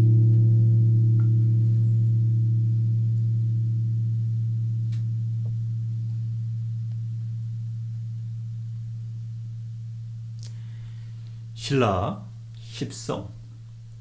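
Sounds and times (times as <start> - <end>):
low gong ringing: 0.0 - 11.0.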